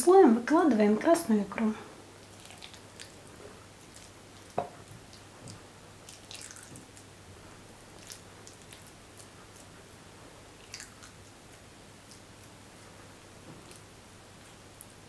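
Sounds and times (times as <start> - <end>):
wet squishes: 2.2 - 7.1, 7.9 - 9.7, 10.6 - 12.6.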